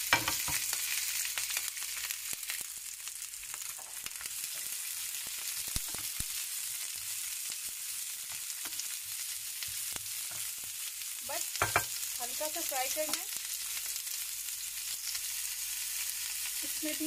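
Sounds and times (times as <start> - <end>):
peppers sizzling in a pan: 0.0 - 17.0.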